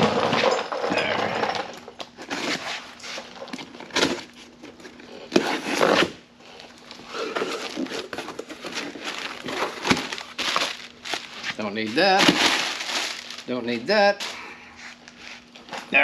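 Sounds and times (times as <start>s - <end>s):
cardboard box rustling and scraping: 7.0s - 13.3s.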